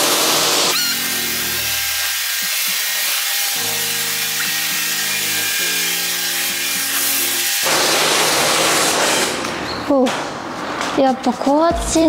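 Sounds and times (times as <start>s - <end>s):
pressure washer spraying: 0.0s - 9.5s
background music: 0.7s - 7.7s, 8.4s - 12.0s.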